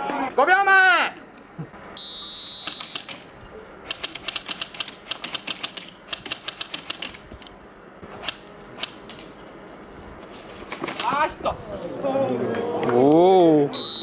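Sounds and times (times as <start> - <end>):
high whistle-like tone: 2.0 - 3.8, 13.7 - 14.0
sharp clicks: 2.7 - 7.6, 8.2 - 9.3.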